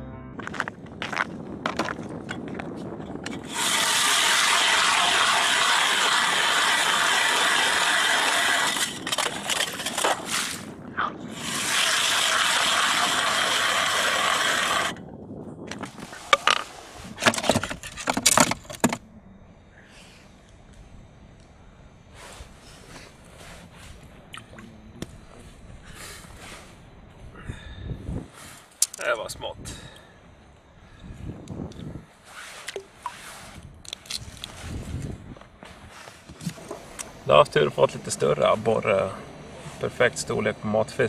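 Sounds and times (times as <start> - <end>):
ice auger grinding through ice: 3.3 - 10.7, 11.3 - 15.0.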